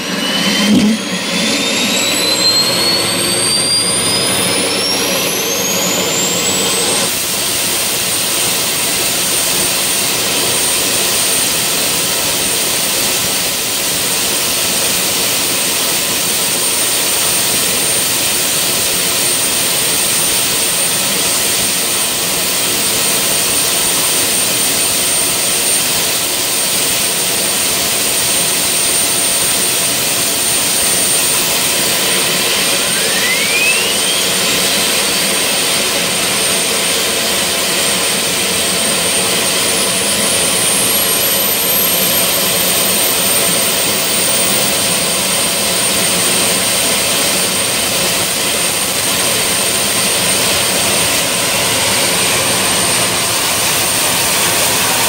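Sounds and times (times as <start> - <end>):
gas turbine running: 0.0 - 55.0
rising turbine whine: 0.0 - 55.0.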